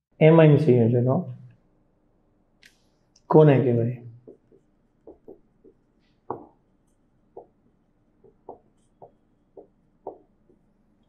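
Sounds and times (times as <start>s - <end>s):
marker writing on whiteboard: 4.2s - 10.7s.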